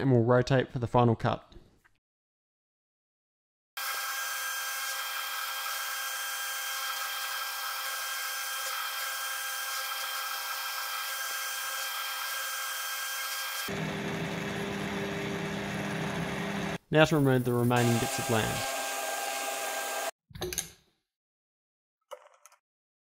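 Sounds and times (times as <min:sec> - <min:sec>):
milling machine whine: 0:12.7 - 0:16.8, 0:17.7 - 0:20.1.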